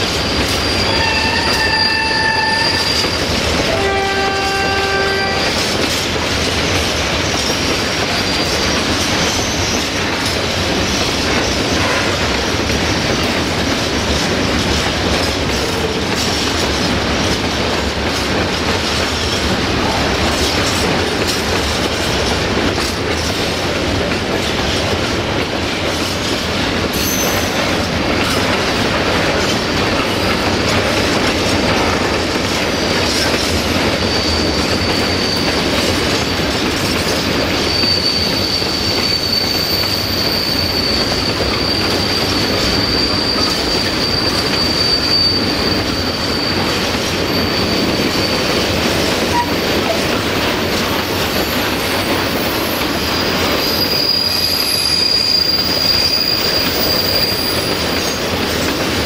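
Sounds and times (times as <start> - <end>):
high wheel squeal: 0.0 - 5.7, 27.0 - 28.4, 32.7 - 59.0
train wheels rumbling and clattering: 0.0 - 59.0.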